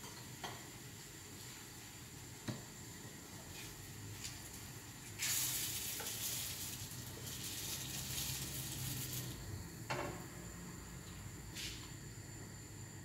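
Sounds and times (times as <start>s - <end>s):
food sizzling in a frying pan: 0.0s - 10.0s.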